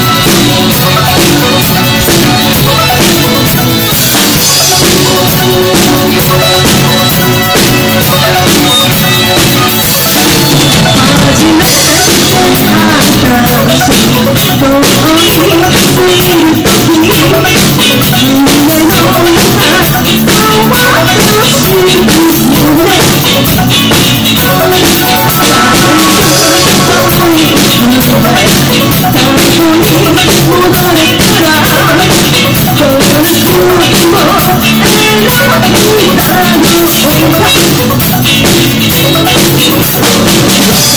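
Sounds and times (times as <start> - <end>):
drum kit: 0.0 - 40.9
electric guitar: 0.0 - 40.9
woman singing into microphone: 10.0 - 23.7, 24.4 - 38.1.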